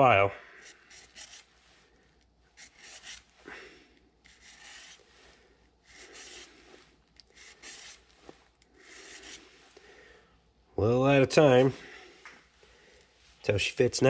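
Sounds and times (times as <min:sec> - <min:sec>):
file rasping on metal: 0:00.7 - 0:01.5, 0:02.6 - 0:03.3, 0:04.3 - 0:05.0, 0:07.3 - 0:08.0.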